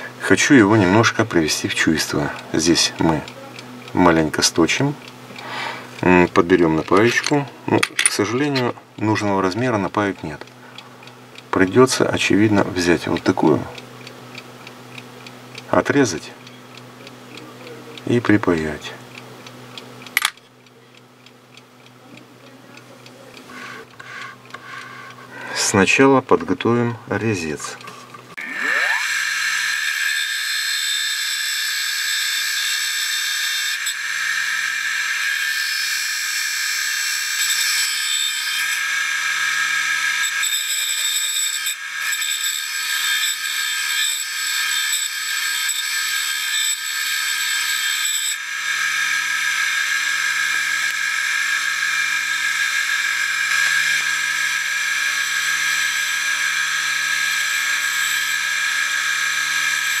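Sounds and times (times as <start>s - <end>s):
electric grinder whining: 0.0s - 10.2s, 28.4s - 60.0s.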